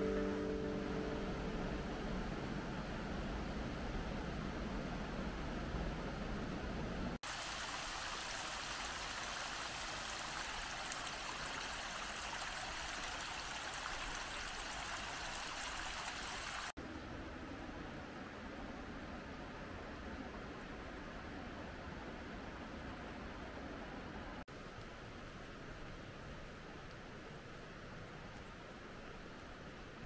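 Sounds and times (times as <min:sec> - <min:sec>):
dull low rumble: 0:00.0 - 0:07.2
mountain river rushing: 0:07.2 - 0:16.8.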